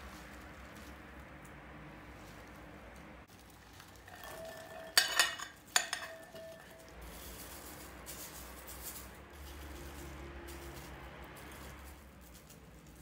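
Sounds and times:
salt pattering on greens: 0:00.0 - 0:13.0
cutlery clinking against glass bowl: 0:04.1 - 0:06.9.

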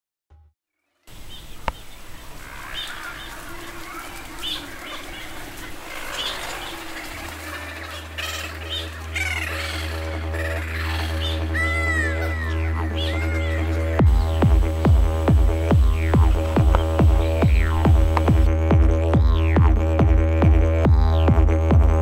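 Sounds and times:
birds chirping and cackling: 0:01.1 - 0:18.5
rushing background noise: 0:01.1 - 0:20.8
low music drone: 0:03.4 - 0:22.0.

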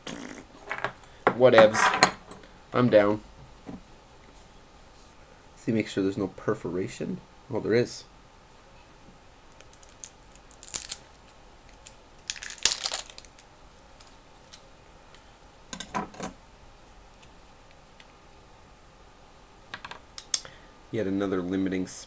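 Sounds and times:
plastic seal crinkling and tearing: 0:11.8 - 0:13.4.

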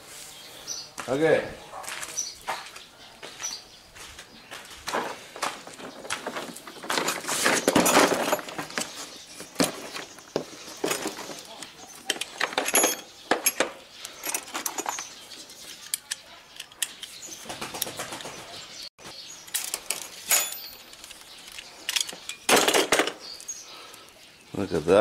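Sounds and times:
rubber cable rustling: 0:04.9 - 0:13.0
tools clinking on metal clamp: 0:12.0 - 0:15.1, 0:19.5 - 0:22.5.

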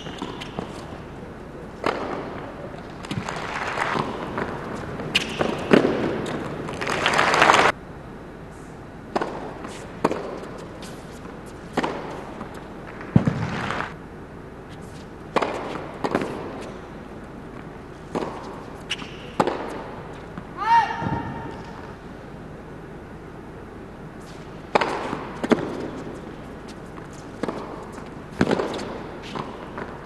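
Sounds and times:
tennis ball bounces: 0:00.0 - 0:01.0, 0:01.7 - 0:07.0, 0:09.1 - 0:13.6, 0:15.2 - 0:16.8, 0:17.5 - 0:21.8, 0:24.2 - 0:30.0
tennis racket strikes: 0:01.8 - 0:06.9, 0:09.1 - 0:13.9, 0:15.0 - 0:16.8, 0:18.0 - 0:21.9, 0:24.2 - 0:30.0
crowd applause: 0:06.8 - 0:07.7.

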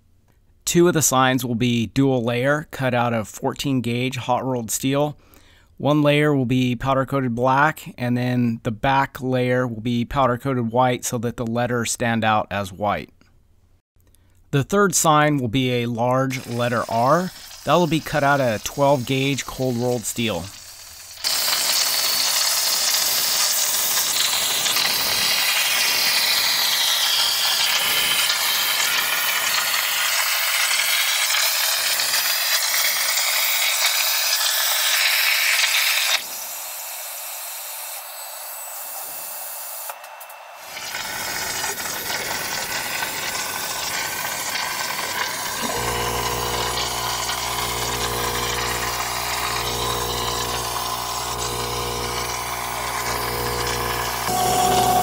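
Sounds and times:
plasma cutter hissing: 0:16.3 - 0:55.0.

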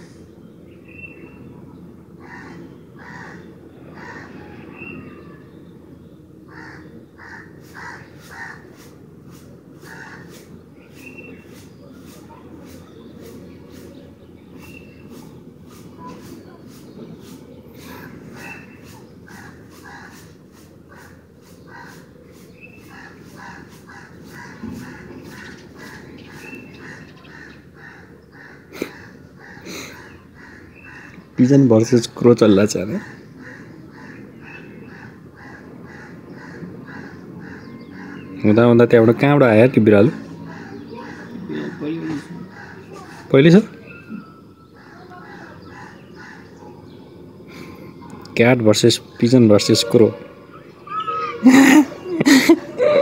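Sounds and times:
crows cawing: 0:02.2 - 0:05.4, 0:06.5 - 0:08.9, 0:09.8 - 0:10.7, 0:17.8 - 0:31.5, 0:32.6 - 0:38.5, 0:39.9 - 0:48.3.

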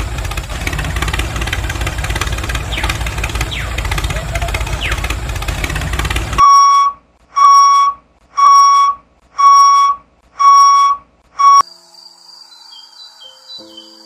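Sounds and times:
electronic beeper beeping: 0:06.4 - 0:11.7.

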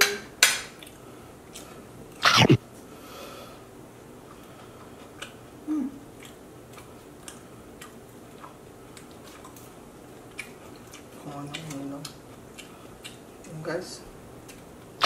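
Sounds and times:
chewing: 0:00.8 - 0:02.4, 0:04.2 - 0:13.6, 0:14.4 - 0:15.0
person humming: 0:02.2 - 0:02.6, 0:05.7 - 0:06.0.

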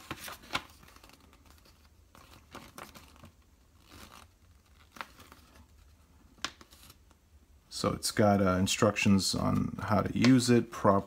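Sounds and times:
paper rustling: 0:00.0 - 0:07.2.

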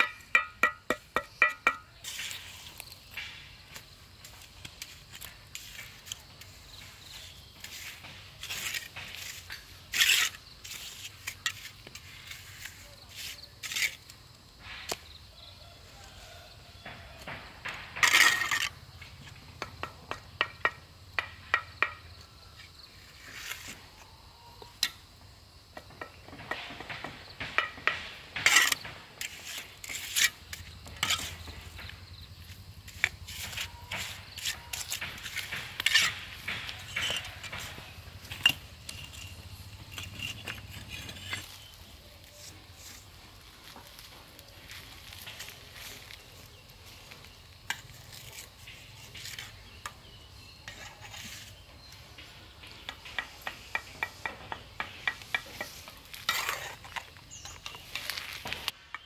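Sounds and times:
hard objects clinking and knocking: 0:00.0 - 0:02.0, 0:33.0 - 0:41.5.

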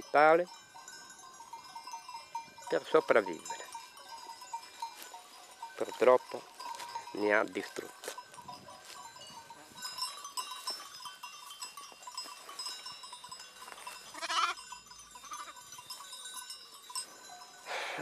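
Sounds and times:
sheep bells tinkling: 0:00.0 - 0:18.0
lamb bleat: 0:14.1 - 0:14.6.

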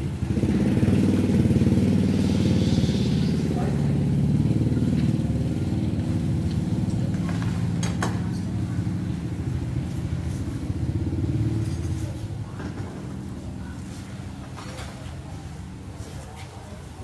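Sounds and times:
small engine running: 0:00.4 - 0:07.6.

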